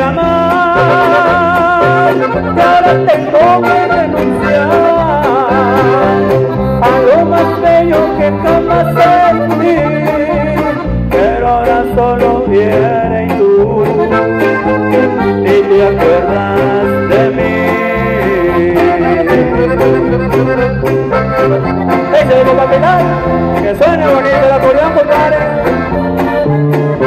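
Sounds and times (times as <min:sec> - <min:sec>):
live band with accordion and trumpets: 0:00.0 - 0:27.0.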